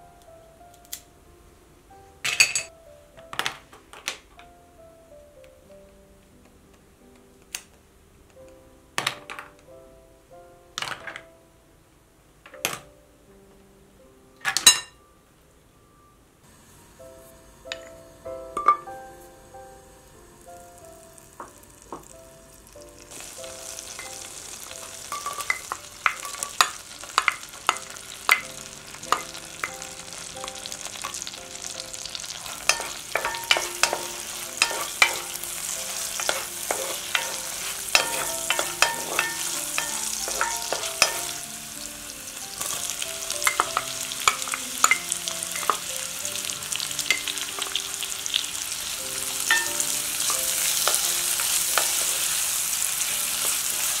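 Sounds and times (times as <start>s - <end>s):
butter and garlic sizzling: 16.5s - 54.0s
wooden spoon clacking on pot: 25.0s - 28.5s, 32.4s - 41.4s.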